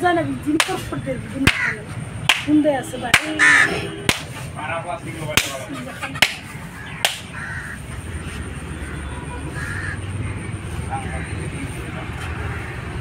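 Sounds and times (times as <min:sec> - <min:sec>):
sharp knocks: 0:02.2 - 0:03.4, 0:04.0 - 0:04.4.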